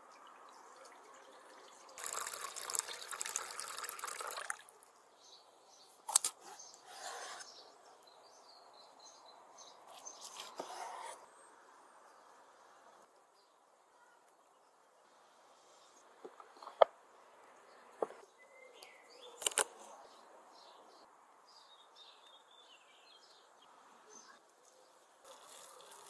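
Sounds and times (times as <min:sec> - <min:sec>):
water pouring and splashing: 0:00.4 - 0:04.8, 0:25.2 - 0:26.0.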